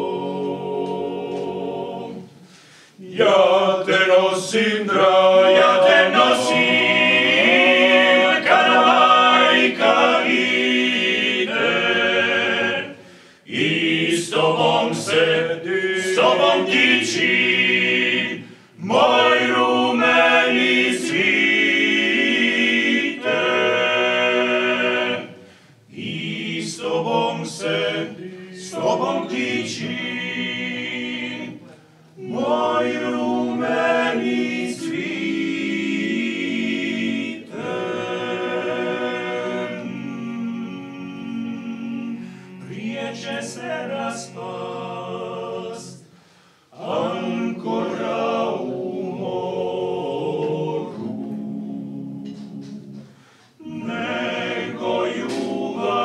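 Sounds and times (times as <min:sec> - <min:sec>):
a cappella group singing in harmony: 0:00.0 - 0:56.0.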